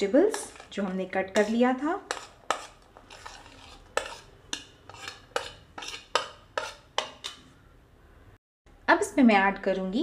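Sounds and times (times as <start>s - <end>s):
spoon scraping a dish: 0.2s - 7.6s.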